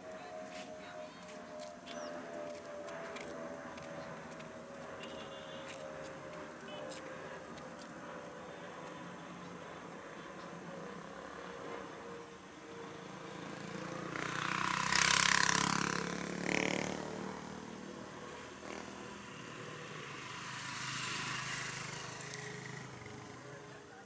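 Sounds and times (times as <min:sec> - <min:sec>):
jet airliner passing overhead: 0:00.0 - 0:13.4.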